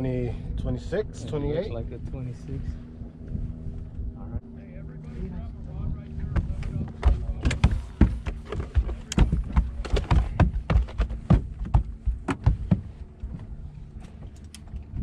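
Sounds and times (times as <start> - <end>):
thumps and knocks on boat: 6.2 - 14.3.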